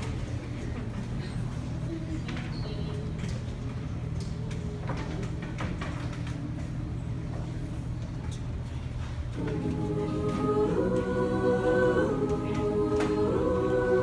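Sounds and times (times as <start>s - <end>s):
faint audience murmurs: 0.0s - 14.0s
low room hum: 0.0s - 14.0s
a cappella choir singing: 9.3s - 14.0s.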